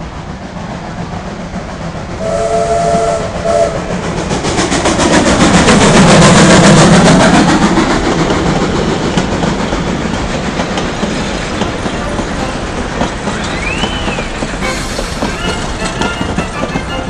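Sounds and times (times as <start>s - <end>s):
steam train rumbling on rails: 0.0s - 17.0s
wheels clicking over rail joints: 4.0s - 17.0s.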